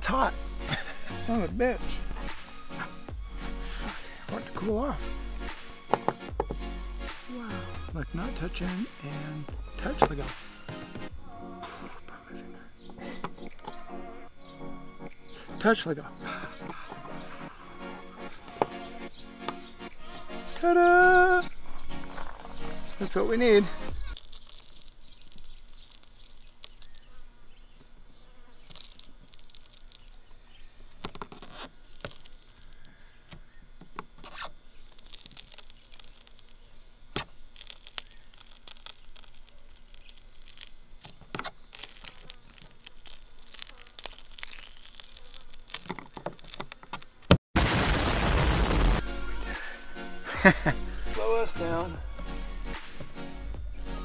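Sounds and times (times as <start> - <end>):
faint steady buzz: 23.8 - 47.4
explosion sound effect: 47.6 - 49.6.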